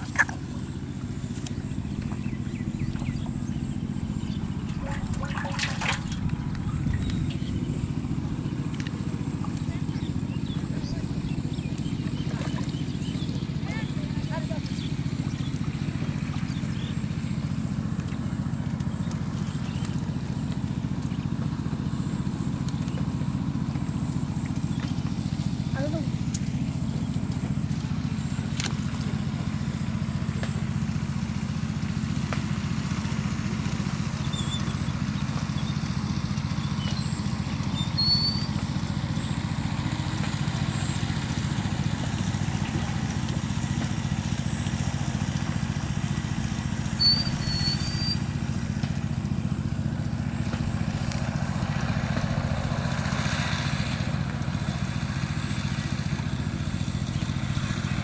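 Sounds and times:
steady low motor drone: 0:00.0 - 0:58.0
high bird chirps: 0:36.7 - 0:38.6, 0:47.0 - 0:48.2.

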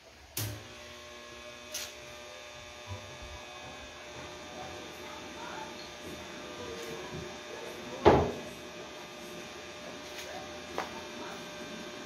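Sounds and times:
welding machine switch click: 0:00.4 - 0:00.6.

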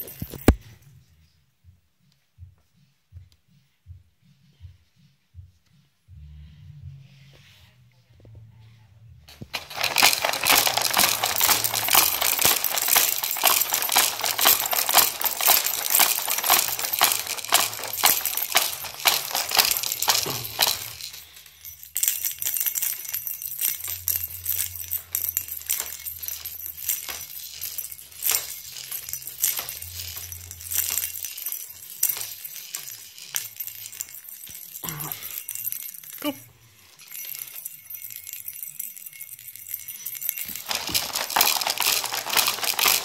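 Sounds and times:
plastic toys rattling and clattering: 0:09.3 - 0:43.0.

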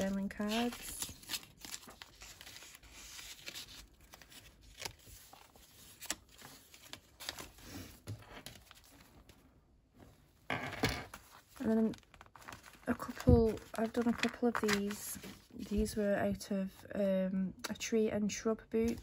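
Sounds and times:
paper pages rustling: 0:00.0 - 0:09.4, 0:11.1 - 0:16.0.

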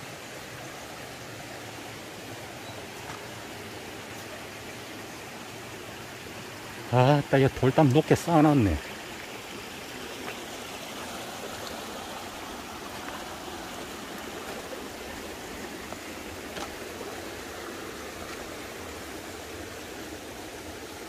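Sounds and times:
stream running over stones: 0:00.0 - 0:21.0.

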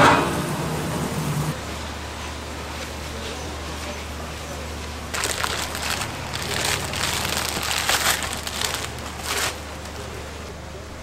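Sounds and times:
plastic wrap crinkling: 0:05.1 - 0:10.5.

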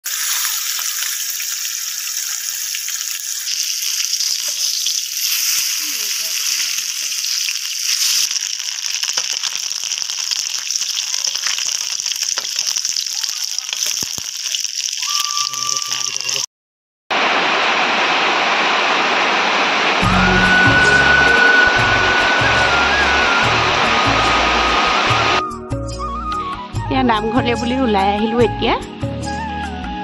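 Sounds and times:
vegetables sizzling in hot oil: 0:00.0 - 0:16.4.

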